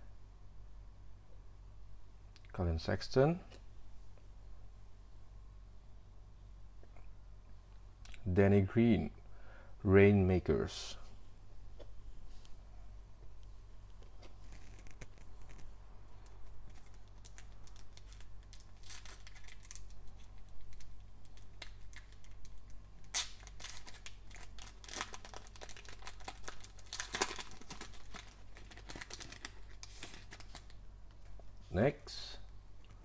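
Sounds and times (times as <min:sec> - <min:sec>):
foil wrapper crinkling: 0:14.2 - 0:30.8
foil wrapper ripping: 0:16.6 - 0:30.8.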